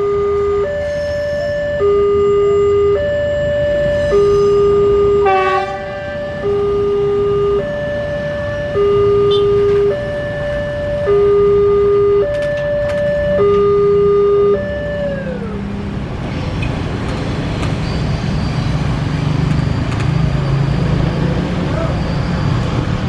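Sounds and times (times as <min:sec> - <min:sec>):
two-tone horn: 0:03.9 - 0:07.8, 0:08.6 - 0:12.4.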